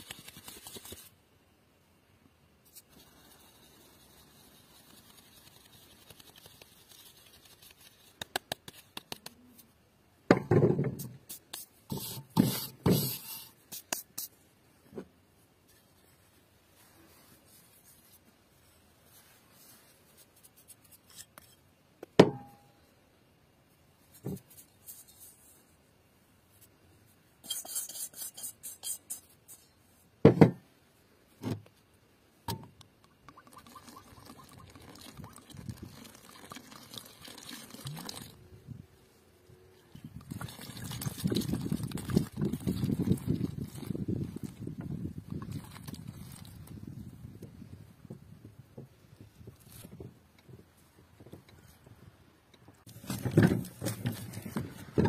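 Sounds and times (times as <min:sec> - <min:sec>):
flour sifting through sieve: 0:02.7 - 0:08.9
thumps in basin: 0:30.3 - 0:30.6.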